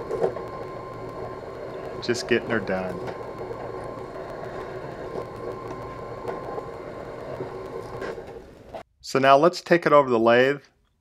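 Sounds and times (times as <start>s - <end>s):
drill bit cutting steel: 0.0s - 8.8s
drill press motor hum: 0.0s - 8.8s.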